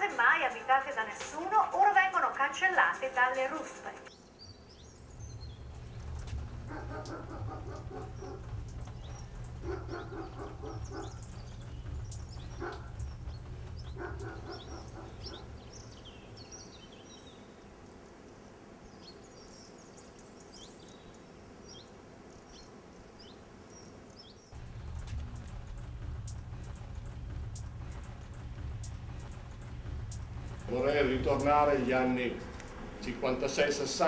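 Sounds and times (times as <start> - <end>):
birds chirping: 0.0 - 34.0
low bird calls: 4.1 - 17.8
low rumble: 5.1 - 16.0, 24.6 - 33.4.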